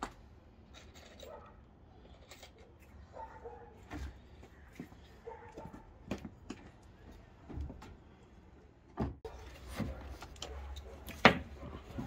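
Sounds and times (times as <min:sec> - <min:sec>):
faint outdoor background: 0:00.0 - 0:12.0.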